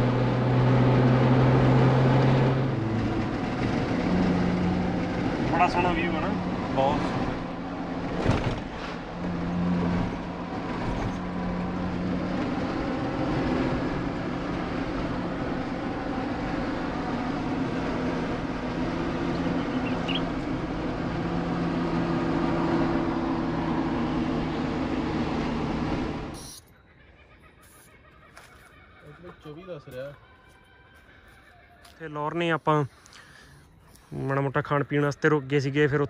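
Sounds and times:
tyre and road rumble: 0.0s - 26.6s
car engine drone: 0.0s - 36.0s.

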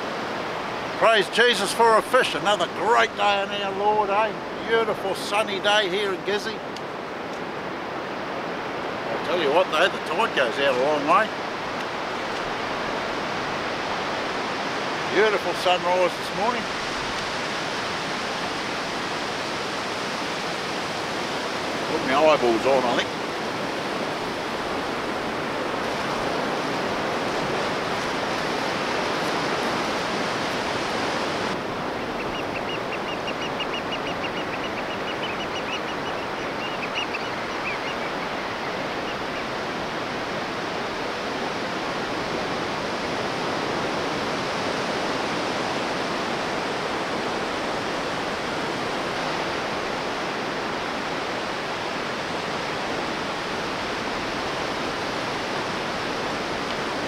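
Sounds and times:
surf washing on sand: 0.0s - 57.0s.

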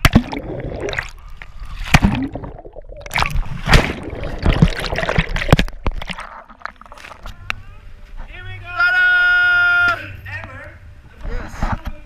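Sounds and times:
muffled underwater bubbling: 0.0s - 7.3s
splash into pool: 3.1s - 6.7s.

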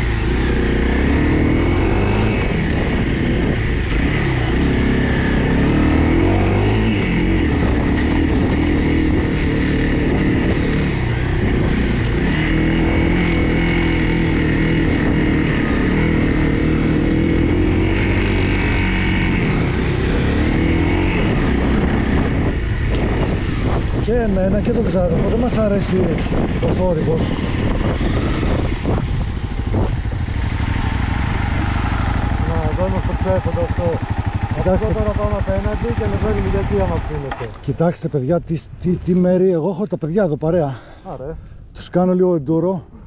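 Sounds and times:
motorcycle engine revving: 0.0s - 38.1s.

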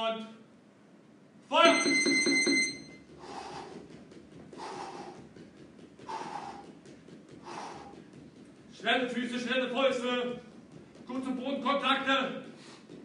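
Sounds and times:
man breathing hard: 3.0s - 8.8s, 12.4s - 13.0s.

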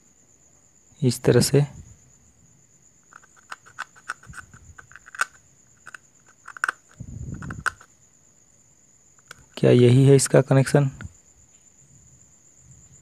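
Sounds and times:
plastic bulb parts clicking and tapping: 3.1s - 7.9s, 9.2s - 9.6s.

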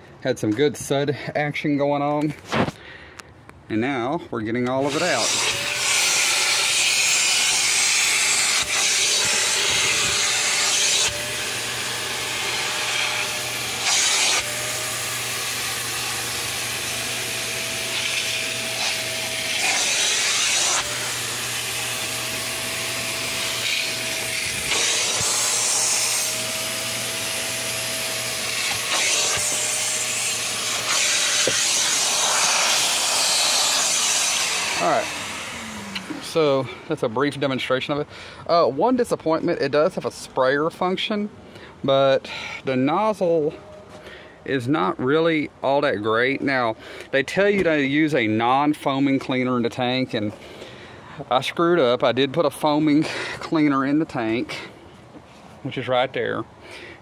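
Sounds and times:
shop vac motor humming and whining: 4.7s - 37.1s
air rushing through vacuum nozzle: 4.8s - 36.4s.

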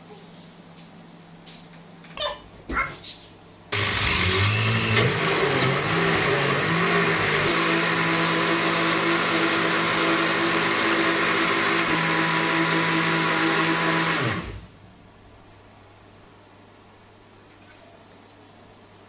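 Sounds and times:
blender running: 3.7s - 14.8s.

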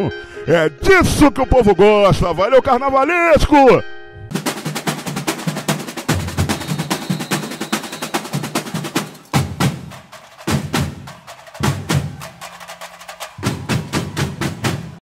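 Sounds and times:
percussion music with drums: 4.3s - 15.0s
wood block strokes: 4.3s - 15.0s.

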